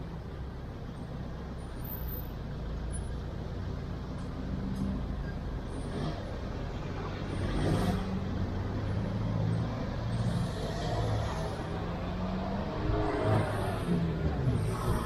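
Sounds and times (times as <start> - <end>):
road noise: 0.0 - 15.0.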